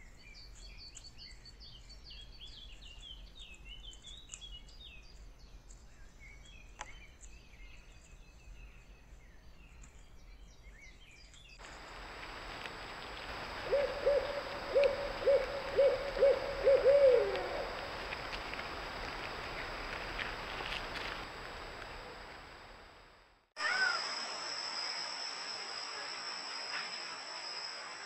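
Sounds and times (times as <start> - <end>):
small birds chirping: 0.0 - 22.3
owl hooting: 11.6 - 22.7
steady hiss: 11.6 - 28.0.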